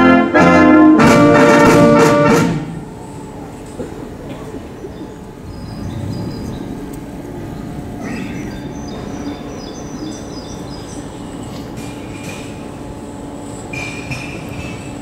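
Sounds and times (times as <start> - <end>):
small birds chirping: 4.6 - 11.8.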